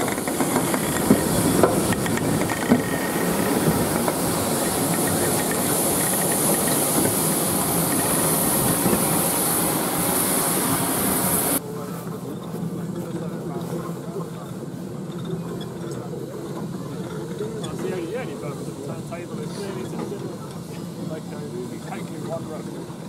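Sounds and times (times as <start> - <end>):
locomotive wheels clanking: 0.0 - 11.6, 12.4 - 23.0
steam hissing: 0.0 - 11.6.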